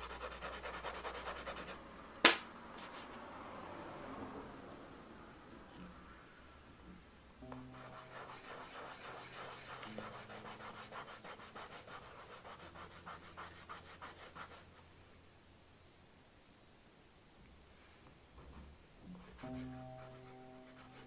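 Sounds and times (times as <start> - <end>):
pastel stick rubbing on paper: 0.0 - 1.8, 7.7 - 14.8, 19.2 - 21.0.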